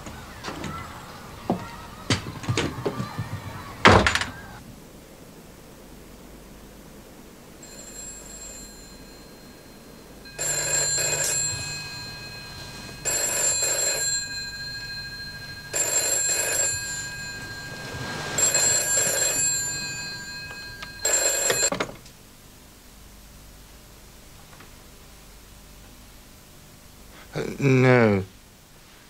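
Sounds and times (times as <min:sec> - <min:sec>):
telephone bell ringing: 0:07.6 - 0:21.9.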